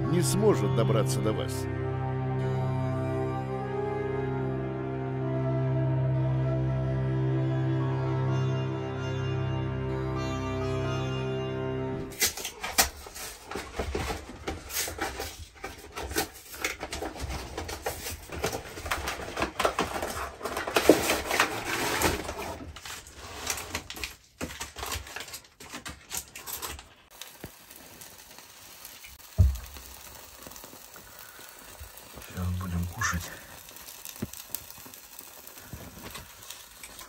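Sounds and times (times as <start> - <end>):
packets and tins knocking: 12.1 - 28.0, 29.0 - 37.0
paper and cardboard rustling: 12.1 - 28.0.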